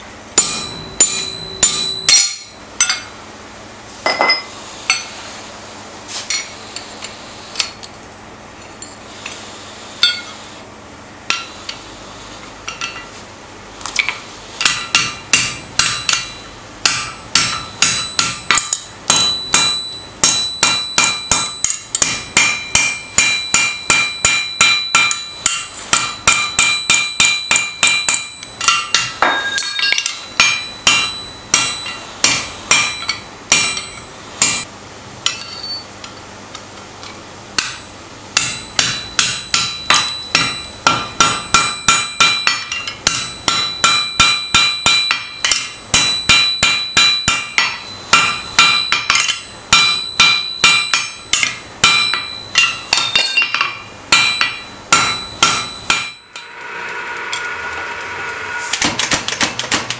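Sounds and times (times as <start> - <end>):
hammer striking chisel on steel: 0.4 - 3.2, 11.3 - 11.8, 14.0 - 35.8, 37.6 - 58.0, 58.6 - 59.9.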